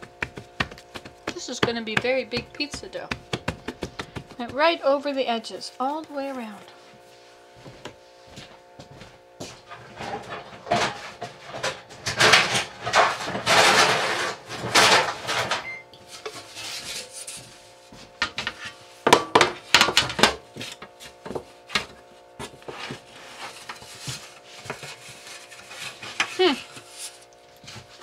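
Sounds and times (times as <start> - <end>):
hands rubbing and scraping dough: 0.0 - 7.2, 22.5 - 28.0.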